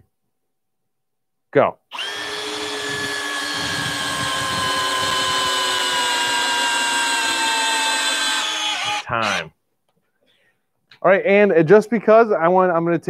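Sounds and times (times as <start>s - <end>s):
cordless screwdriver motor whine: 1.9s - 9.4s.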